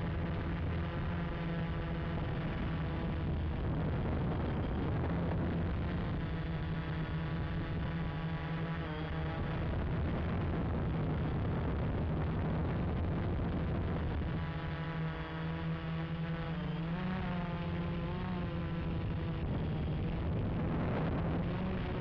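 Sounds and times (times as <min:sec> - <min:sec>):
steady low rumble: 0:00.0 - 0:14.6
drone motors and propellers buzzing: 0:00.0 - 0:22.0.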